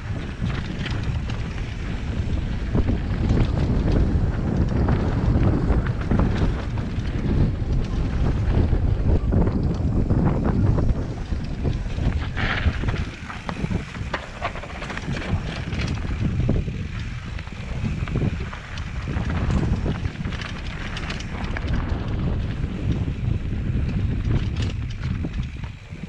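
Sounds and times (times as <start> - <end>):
bike clicking and rattling: 0.0 - 26.0
tyres rumbling on dirt: 0.0 - 26.0
wind buffeting microphone: 0.0 - 26.0.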